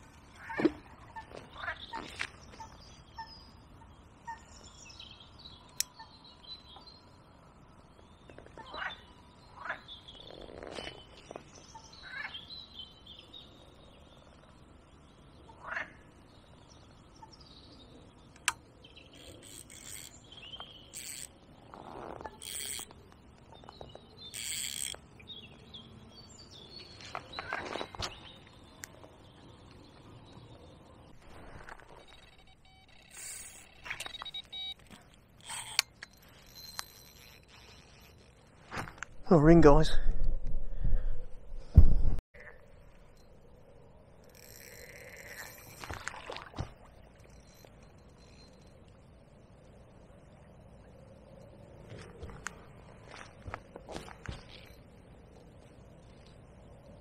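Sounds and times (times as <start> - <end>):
birds chirping and calling: 15.2 - 31.2
fishing tackle clicking and rustling: 18.3 - 25.2, 31.2 - 39.2, 44.0 - 49.4, 51.8 - 56.6.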